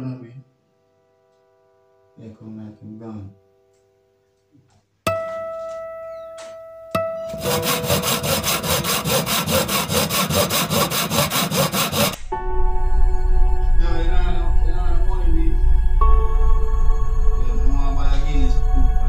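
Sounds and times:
loud rasping rhythm: 0:07.3 - 0:12.2.

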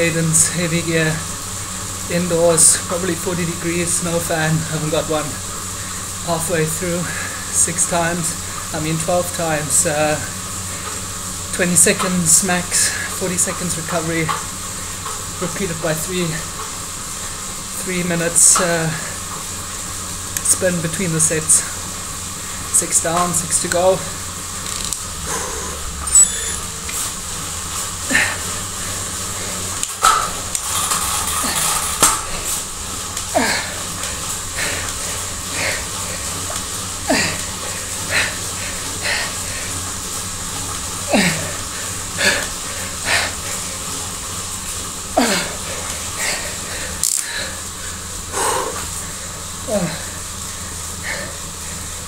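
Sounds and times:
bike trainer whirring: 0:00.0 - 0:52.0
hard exhalations: 0:25.2 - 0:26.6, 0:45.2 - 0:51.5
man grunting: 0:33.4 - 0:33.8, 0:37.1 - 0:37.5, 0:41.1 - 0:41.6, 0:45.2 - 0:45.6, 0:49.7 - 0:50.2.

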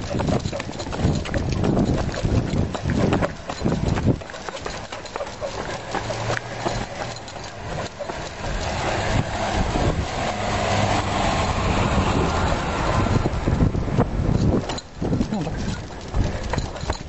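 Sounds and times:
jogging footsteps rumbling: 0:00.0 - 0:17.0
wind buffeting microphone: 0:00.0 - 0:17.0.

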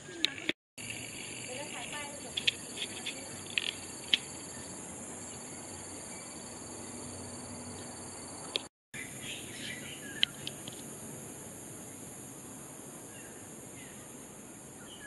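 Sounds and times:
high insect drone: 0:00.8 - 0:15.0
sharp clicks: 0:01.8 - 0:04.3.

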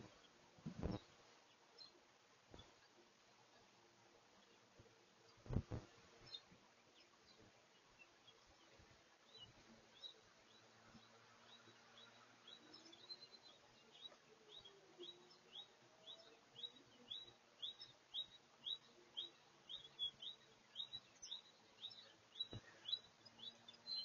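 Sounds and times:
bird chirping: 0:00.0 - 0:03.7, 0:05.3 - 0:24.0.

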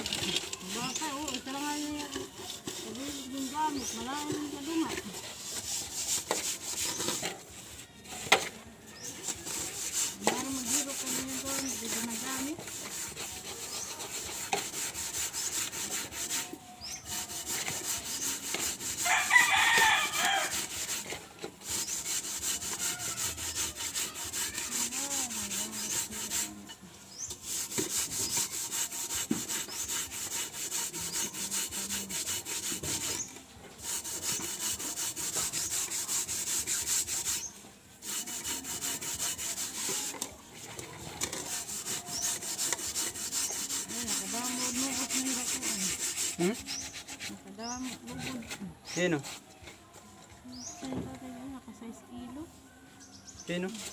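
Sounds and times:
gritty scrubbing of a pot: 0:00.0 - 0:49.6, 0:53.6 - 0:53.9
rooster crowing: 0:19.0 - 0:20.6.

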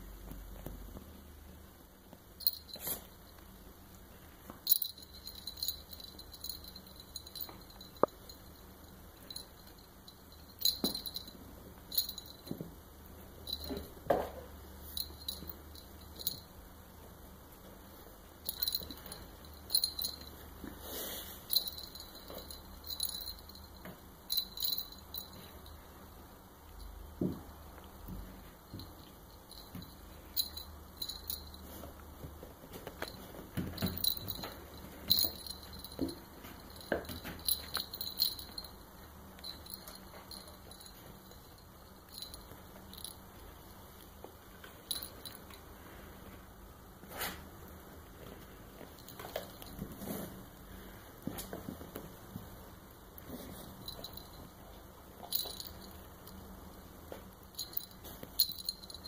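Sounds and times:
small metal bell jingling: 0:02.4 - 0:03.4, 0:04.6 - 0:12.6, 0:13.4 - 0:16.6, 0:18.4 - 0:20.7, 0:21.4 - 0:26.0, 0:28.7 - 0:32.0, 0:32.8 - 0:43.7, 0:44.7 - 0:45.6, 0:48.8 - 0:50.4, 0:53.2 - 0:56.6, 0:57.3 - 0:59.0.

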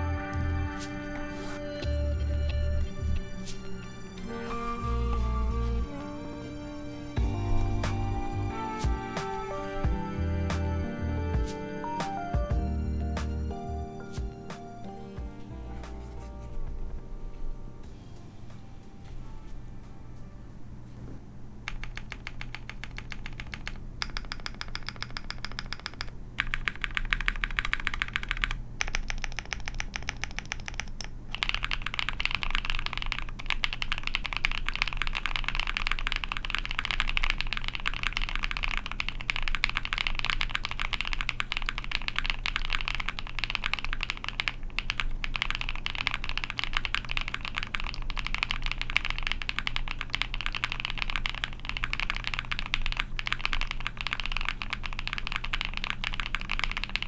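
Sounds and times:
mechanical keyboard typing: 0:21.6 - 0:57.0.

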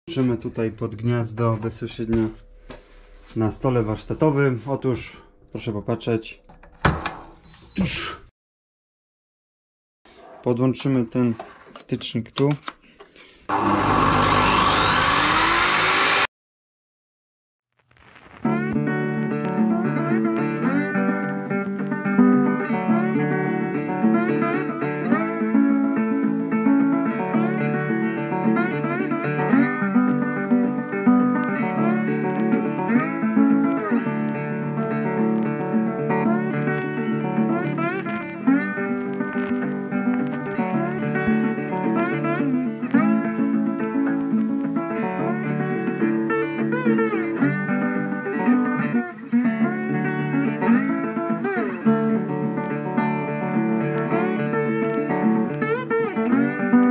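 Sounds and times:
guitar playing a tune: 0:18.4 - 0:56.9.

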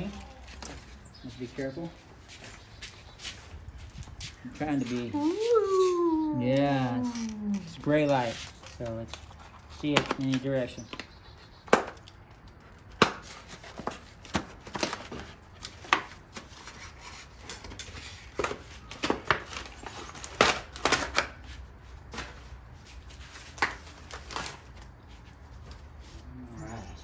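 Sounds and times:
foam wrap crinkling: 0:23.3 - 0:25.7.

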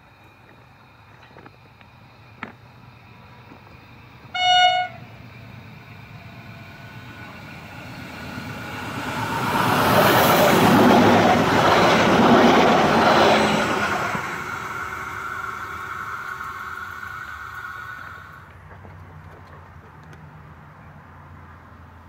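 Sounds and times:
tram running past: 0:00.0 - 0:20.2
tram horn blast: 0:04.3 - 0:05.4.

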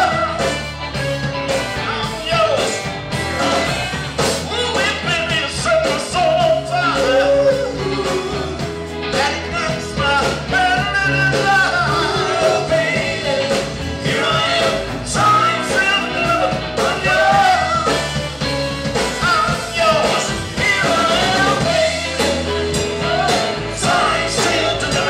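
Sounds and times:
bass guitar: 0:00.0 - 0:25.0
drums: 0:00.0 - 0:25.0
electric guitar: 0:00.0 - 0:25.0
person singing: 0:04.4 - 0:18.2, 0:19.0 - 0:25.0.

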